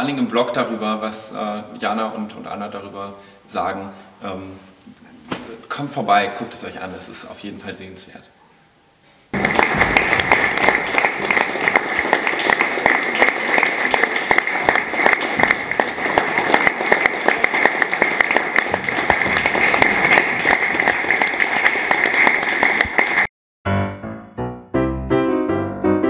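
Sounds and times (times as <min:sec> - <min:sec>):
audience applauding: 0:09.3 - 0:23.3.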